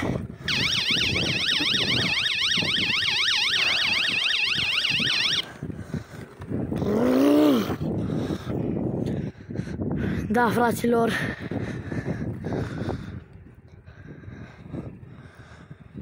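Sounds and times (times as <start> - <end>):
warbling electronic bicycle horn: 0.5 - 5.5.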